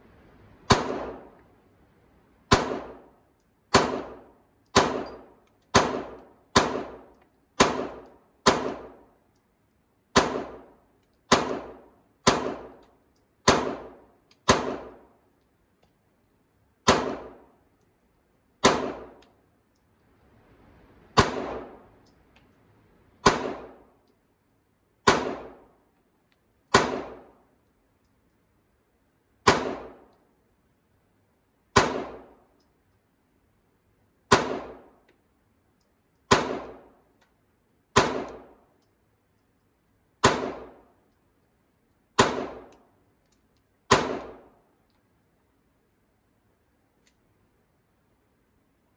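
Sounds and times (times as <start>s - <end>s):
pistol shots echoing indoors: 0.6s - 1.4s, 2.5s - 9.2s, 10.1s - 15.1s, 16.8s - 17.6s, 18.6s - 19.3s, 21.1s - 22.0s, 23.2s - 24.0s, 25.0s - 25.8s, 26.7s - 27.4s, 29.4s - 30.2s, 31.7s - 32.5s, 34.3s - 35.1s, 36.2s - 37.0s, 37.9s - 38.7s, 40.2s - 41.1s, 42.2s - 42.9s, 43.9s - 44.7s.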